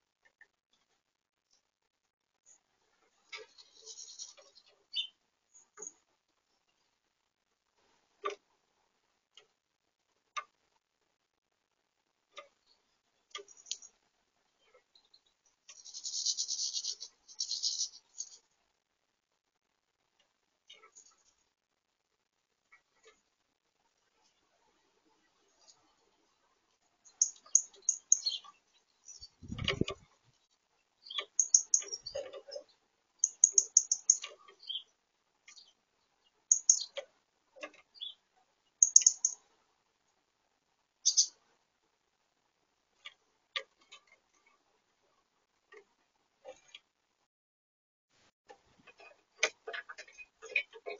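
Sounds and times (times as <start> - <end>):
high-pitched bird rattle: 15.7 - 18.4, 27.1 - 28.4, 31.1 - 32.6, 33.2 - 34.4, 36.5 - 37.0, 38.8 - 39.4, 41.0 - 41.3
sharp bird clicks: 31.0 - 32.2, 33.2 - 34.8, 36.5 - 37.1, 38.8 - 39.4, 41.0 - 41.3.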